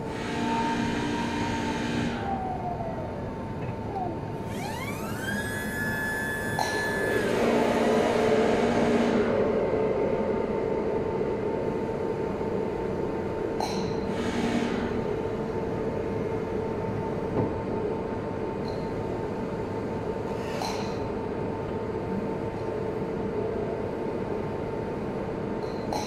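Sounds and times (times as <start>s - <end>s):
forklift running with whine: 0.0s - 13.5s.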